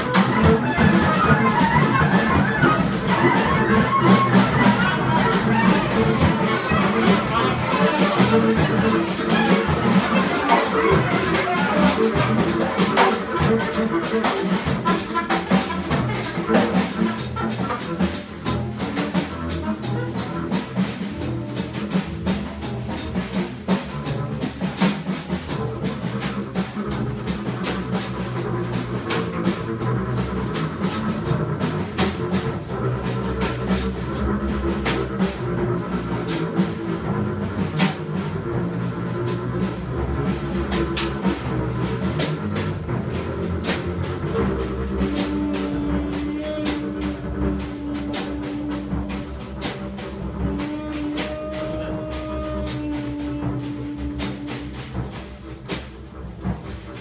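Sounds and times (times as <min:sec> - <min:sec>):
drum kit and cymbals: 0:00.0 - 0:57.0
walking double bass: 0:00.0 - 0:57.0
saxophone line: 0:00.1 - 0:22.8, 0:42.4 - 0:56.5.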